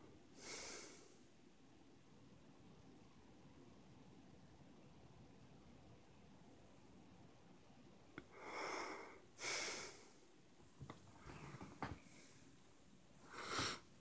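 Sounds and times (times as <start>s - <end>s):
man breathing: 0.4s - 1.2s, 13.2s - 13.9s.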